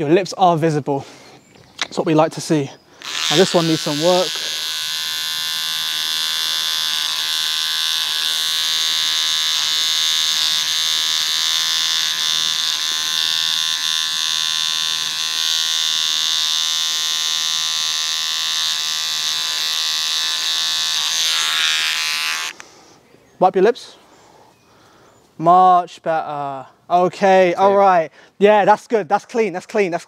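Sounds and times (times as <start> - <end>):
electric beard trimmer buzzing: 3.0 - 22.7.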